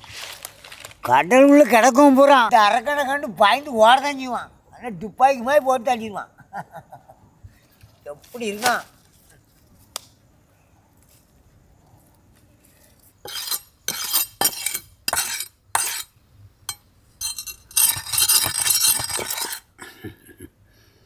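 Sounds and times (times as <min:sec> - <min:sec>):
knife scraping on wooden log: 0:13.2 - 0:19.7.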